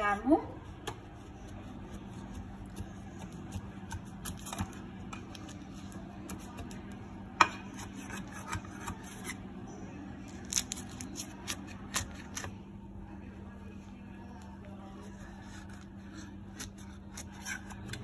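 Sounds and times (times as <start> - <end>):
knife scraping metal baking pan: 7.4 - 9.4.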